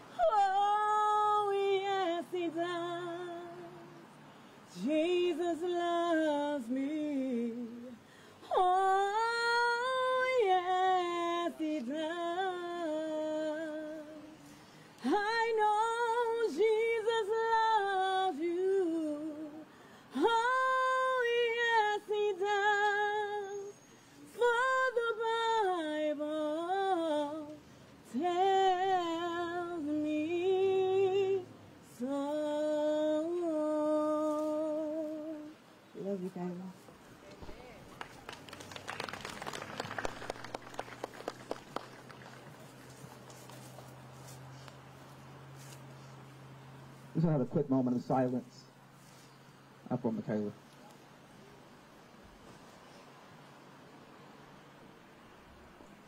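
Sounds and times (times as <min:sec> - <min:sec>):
woman singing unaccompanied: 0:00.0 - 0:36.8.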